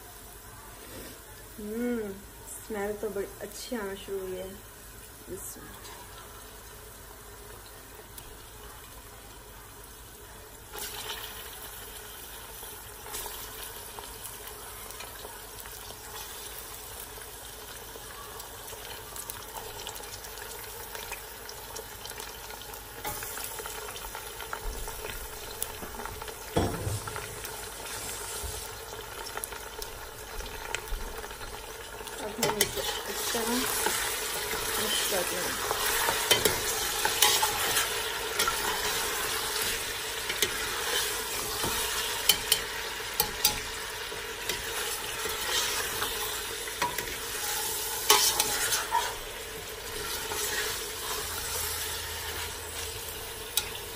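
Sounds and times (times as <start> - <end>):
meat sizzling in hot oil: 0.0 - 53.9
metal spoon scraping a pot: 46.8 - 49.2.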